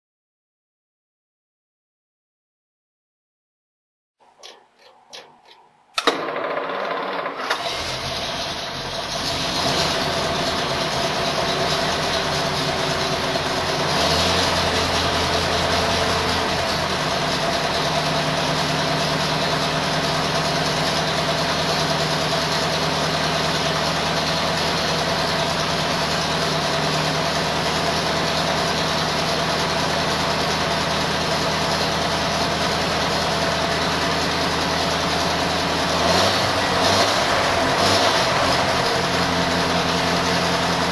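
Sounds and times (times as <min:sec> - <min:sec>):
starter motor cranking: 0:04.4 - 0:12.2
car engine idling: 0:07.5 - 0:40.9.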